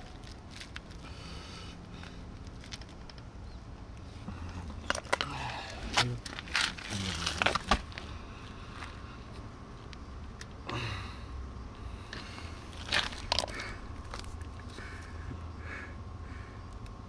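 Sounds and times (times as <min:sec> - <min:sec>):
low vocal sounds: 0:04.2 - 0:07.7, 0:10.6 - 0:11.4.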